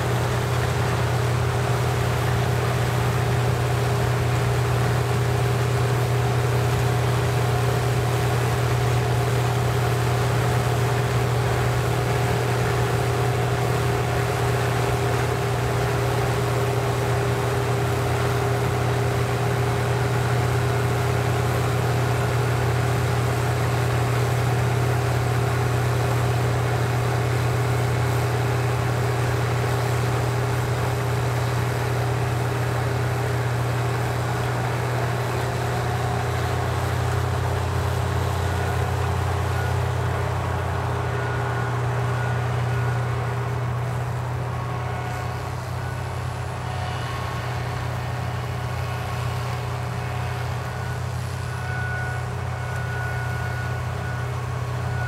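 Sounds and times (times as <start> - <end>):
diesel engine droning under load: 0.0 - 55.0.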